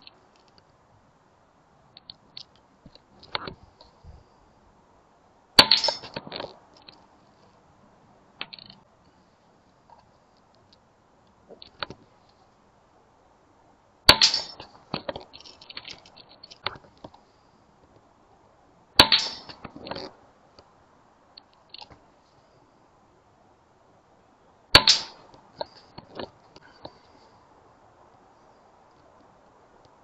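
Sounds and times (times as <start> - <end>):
pellet striking metal targets: 5.6 - 6.3, 14.1 - 14.8, 19.0 - 19.7, 24.8 - 25.3
metal targets rattling: 5.6 - 6.5, 14.1 - 16.7, 19.0 - 20.1, 24.8 - 25.3
air rifle shots: 24.8 - 25.2.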